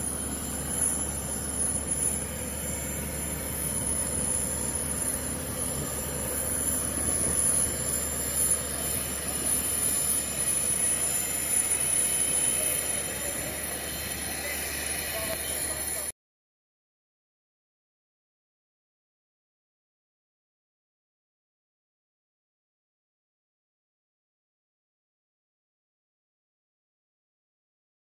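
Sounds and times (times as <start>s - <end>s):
machinery drone with high whine: 0.0s - 16.1s.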